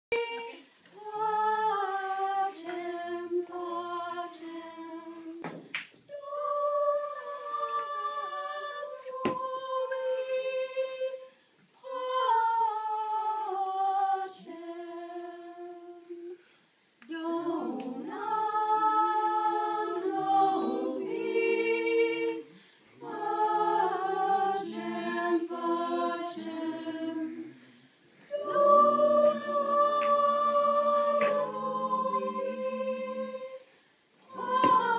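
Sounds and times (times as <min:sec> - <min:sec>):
unaccompanied singing: 0:00.1 - 0:16.4, 0:17.0 - 0:34.9
voices singing in harmony: 0:00.1 - 0:34.9.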